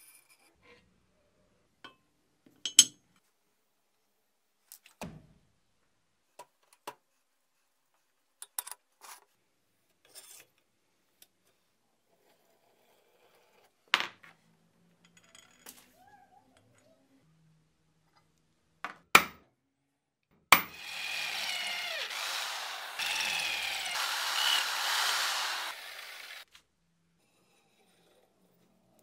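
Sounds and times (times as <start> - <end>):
power tool grinding metal: 20.7 - 26.5.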